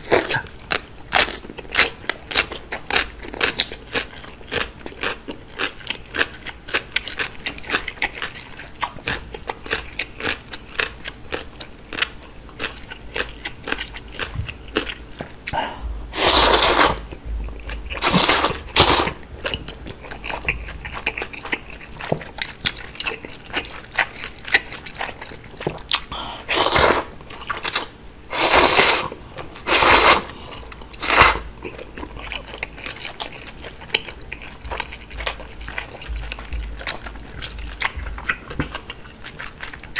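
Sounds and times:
slurping noodles: 0:16.1 - 0:17.0, 0:26.5 - 0:30.4
wet chewing clicks and smacks: 0:19.4 - 0:26.1, 0:31.7 - 0:39.9.

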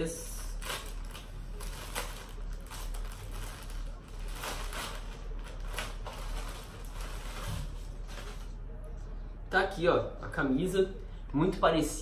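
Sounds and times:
plastic bag crinkling: 0:00.2 - 0:08.6.

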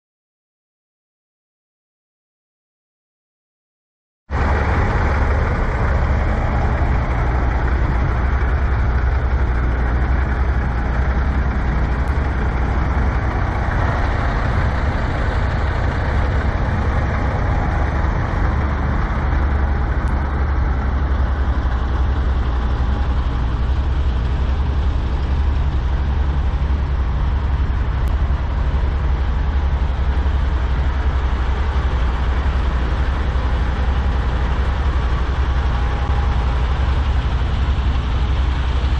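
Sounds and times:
diesel truck engines idling: 0:04.3 - 0:38.9.

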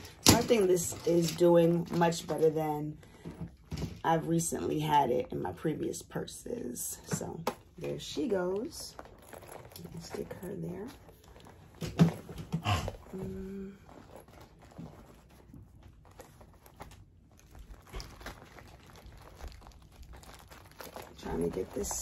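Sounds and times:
plastic pouch crinkling: 0:08.0 - 0:12.4, 0:13.0 - 0:22.0
leather rustling: 0:08.0 - 0:22.0.

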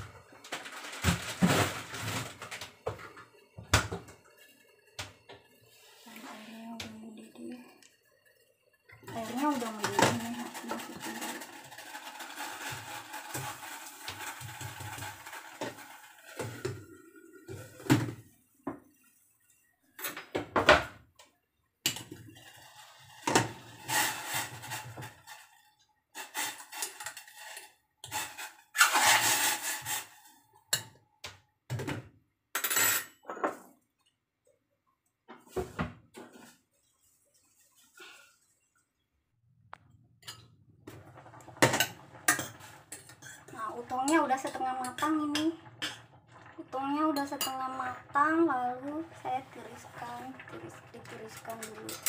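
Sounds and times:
boiling water hissing: 0:00.0 - 0:20.1, 0:21.9 - 0:30.8, 0:40.8 - 0:52.0.

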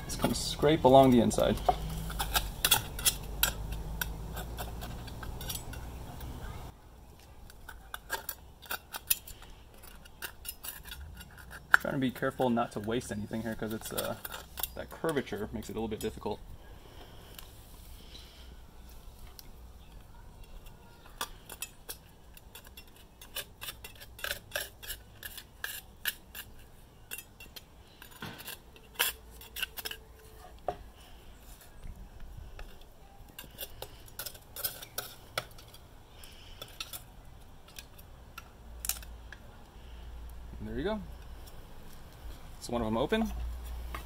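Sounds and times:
knife scraping clam shell: 0:01.0 - 0:06.0, 0:07.5 - 0:16.2, 0:20.4 - 0:31.8, 0:32.4 - 0:39.1.

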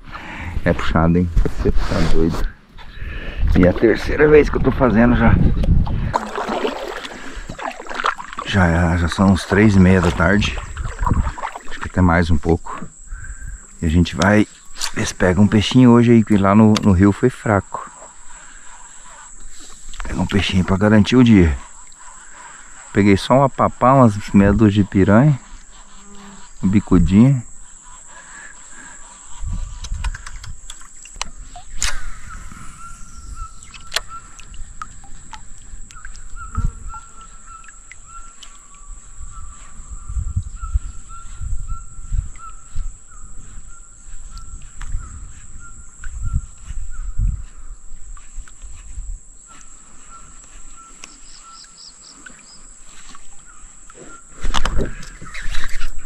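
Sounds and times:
bird calls: 0:06.2 - 0:56.0
high-pitched insect buzz: 0:25.4 - 0:26.7.

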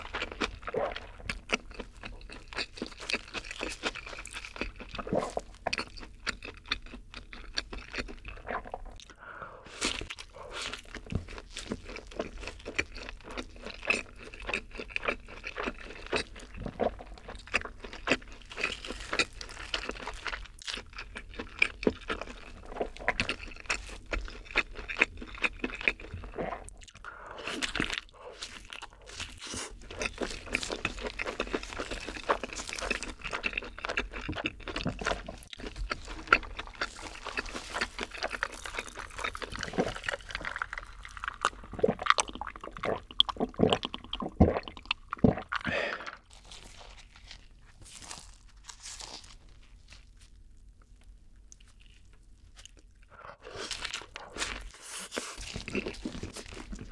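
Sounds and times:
close chewing with crunches: 0:00.0 - 0:56.9.

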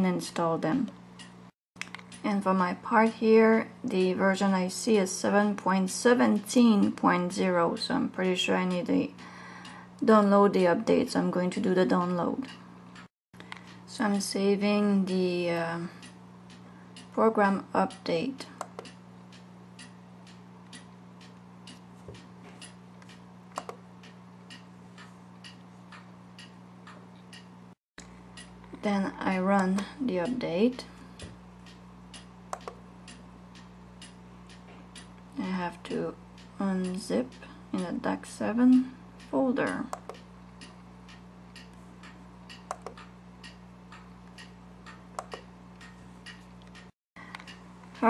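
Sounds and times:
low electrical hum: 0:00.0 - 0:48.0
faint ticking: 0:17.8 - 0:48.0.

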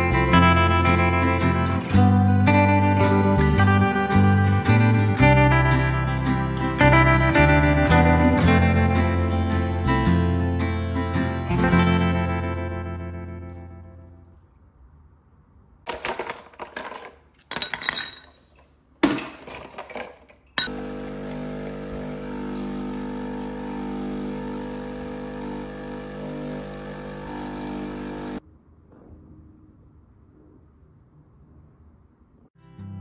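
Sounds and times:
coffee machine pump humming: 0:04.9 - 0:10.0, 0:20.6 - 0:28.4
ice cubes clinking into glass: 0:15.9 - 0:18.5.

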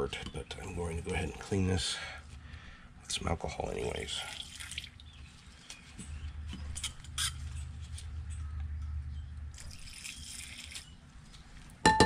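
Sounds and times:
liquid splashing in a bowl: 0:04.1 - 0:05.6, 0:09.5 - 0:11.0.

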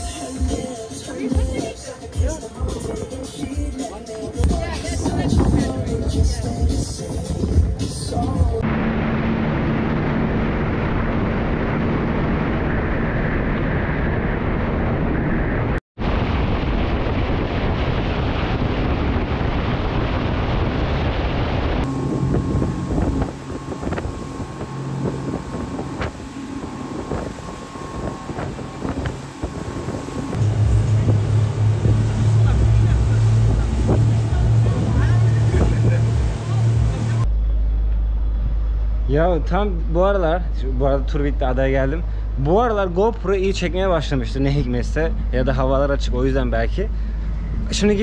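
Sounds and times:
wind buffeting microphone: 0:04.4 - 0:07.8, 0:09.1 - 0:37.3
motorboat engine running: 0:04.4 - 0:48.0.

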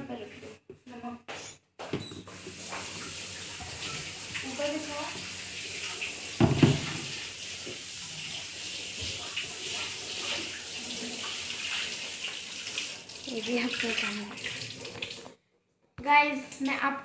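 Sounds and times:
tap running into steel sink: 0:06.4 - 0:07.8.

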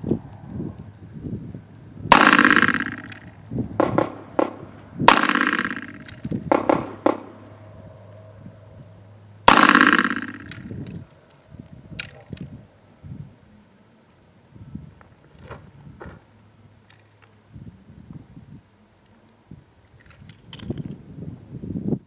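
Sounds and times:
revolver shots: 0:02.1 - 0:07.4, 0:09.5 - 0:10.8.

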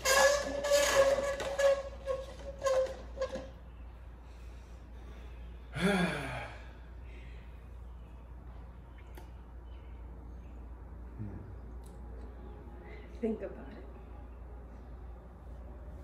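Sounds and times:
plastic cups squeaking on glass: 0:00.0 - 0:03.6
person sighing: 0:05.8 - 0:06.7.

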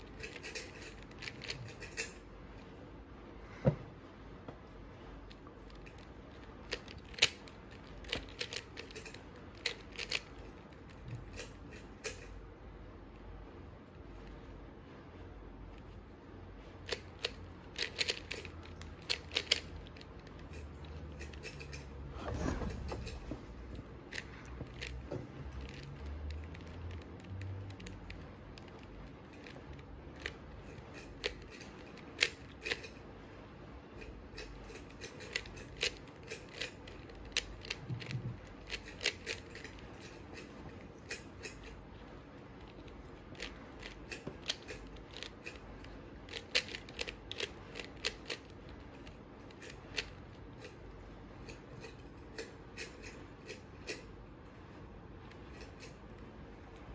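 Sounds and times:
puzzle cube clicking: 0:17.2 - 0:18.4.

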